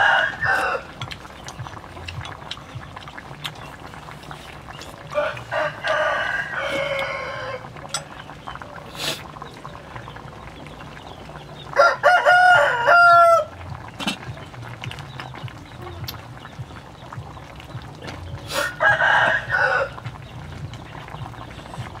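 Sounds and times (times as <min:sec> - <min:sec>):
rooster crowing: 0:00.0 - 0:00.9, 0:05.1 - 0:07.7, 0:11.8 - 0:13.5, 0:18.5 - 0:20.0.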